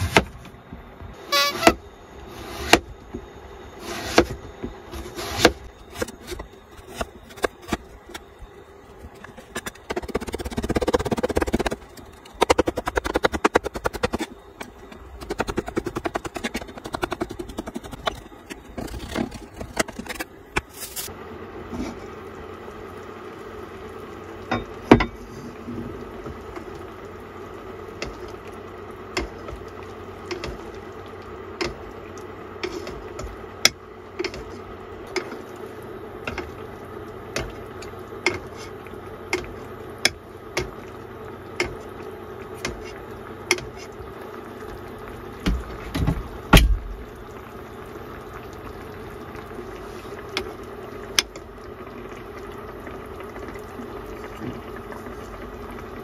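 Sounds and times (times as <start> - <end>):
broth bubbling in pot: 0.0 - 56.0.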